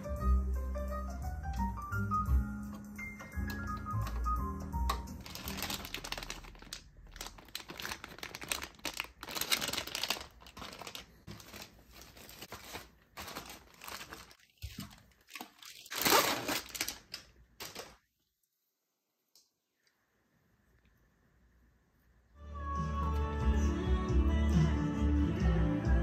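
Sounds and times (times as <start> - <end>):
plastic bags crinkling: 4.9 - 18.1.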